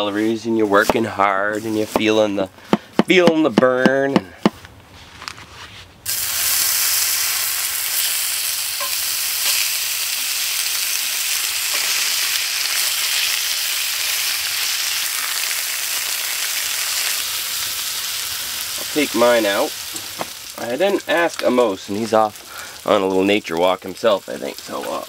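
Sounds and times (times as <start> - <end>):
bacon sizzling in a skillet: 6.1 - 25.0.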